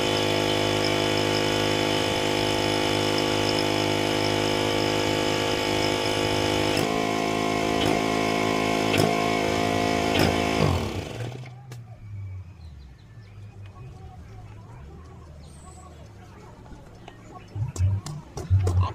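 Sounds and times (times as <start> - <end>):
pressure washer engine running: 0.0 - 11.6.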